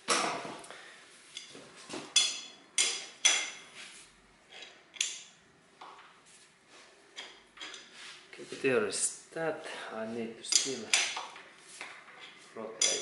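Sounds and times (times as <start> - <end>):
metal tools clinking: 2.1 - 3.7, 7.2 - 7.9, 10.5 - 11.4, 12.1 - 13.0.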